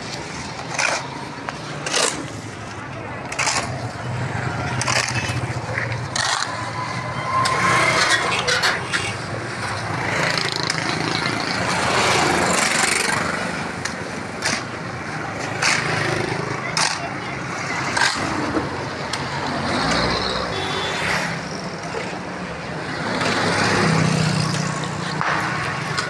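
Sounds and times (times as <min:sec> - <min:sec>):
shovel scraping wet concrete: 0:00.0 - 0:02.5, 0:03.2 - 0:04.0, 0:04.6 - 0:09.2
street traffic hum: 0:00.0 - 0:26.0.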